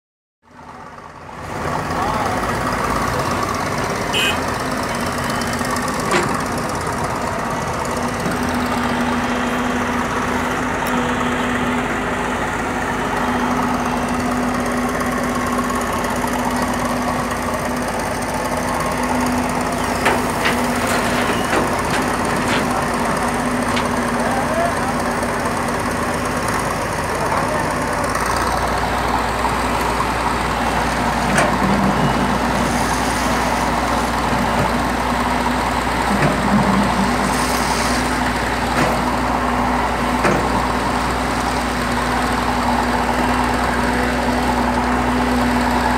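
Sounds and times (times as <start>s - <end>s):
heavy machinery engine droning: 0.5s - 45.9s.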